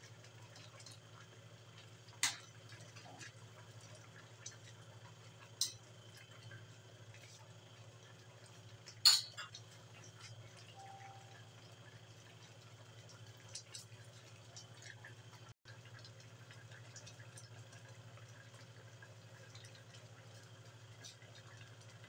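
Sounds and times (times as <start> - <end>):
stew bubbling and popping: 0.0 - 22.0
gas burner hum: 8.9 - 9.5.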